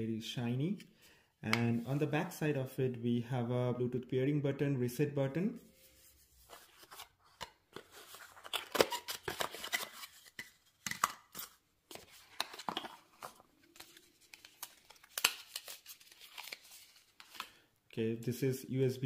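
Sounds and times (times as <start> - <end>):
cardboard and paper rustling: 5.8 - 17.6.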